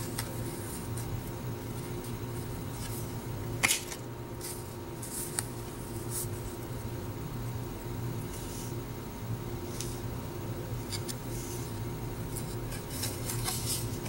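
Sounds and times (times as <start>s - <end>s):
cards rustling and tapping: 0.0s - 1.1s, 12.3s - 14.0s.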